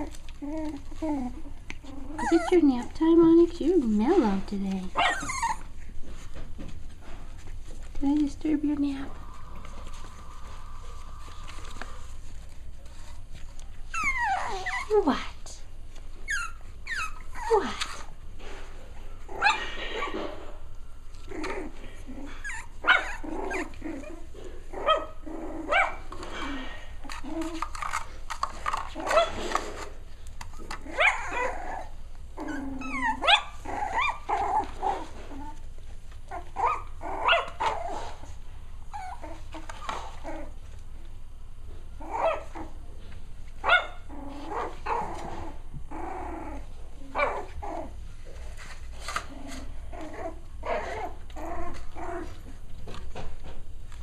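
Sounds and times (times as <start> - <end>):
puppies barking and yipping: 0.0 - 2.9, 3.8 - 7.8, 8.8 - 15.0, 16.2 - 18.2, 19.2 - 20.5, 21.1 - 29.8, 30.4 - 40.8, 42.0 - 42.8, 43.6 - 48.0
puppies growling: 0.0 - 54.0.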